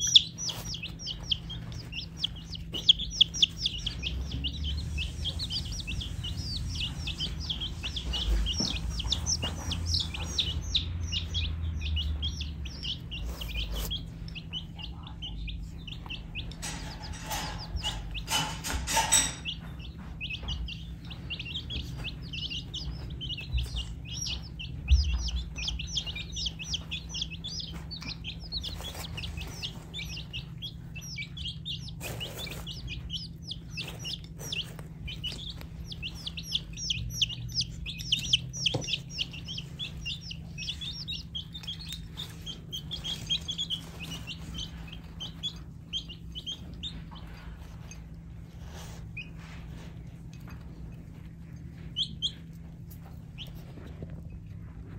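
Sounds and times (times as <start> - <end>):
baby chicks peeping: 0.0 - 54.9.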